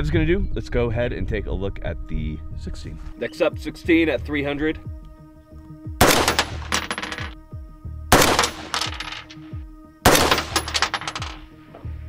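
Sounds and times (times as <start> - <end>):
rifle shots echoing: 6.0 - 7.3, 8.1 - 9.3, 10.1 - 11.4.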